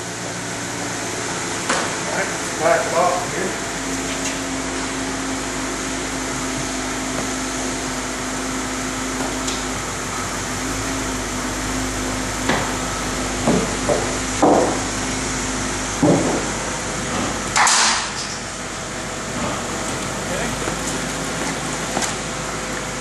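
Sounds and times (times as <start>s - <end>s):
car engine idling: 0.0s - 23.0s
sharp knocks: 13.4s - 14.9s, 16.0s - 16.5s.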